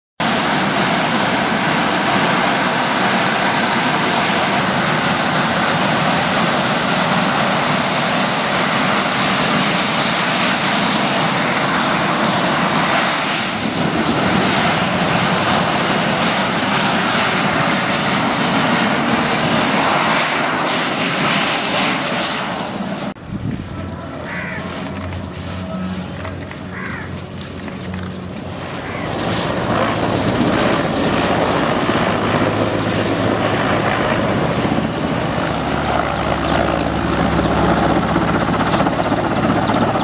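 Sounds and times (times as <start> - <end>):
jet engines at high power: 0.2 - 40.0.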